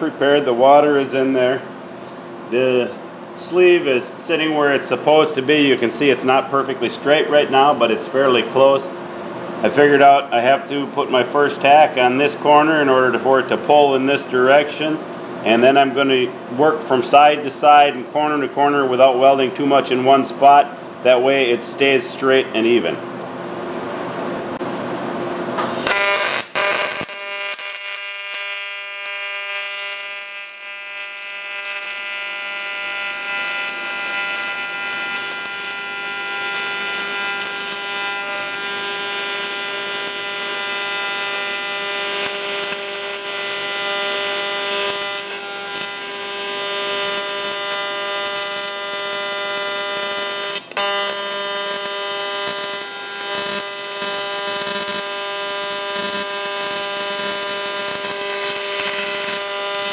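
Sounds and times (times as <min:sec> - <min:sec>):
welding arc buzzing: 0:25.5 - 0:59.9.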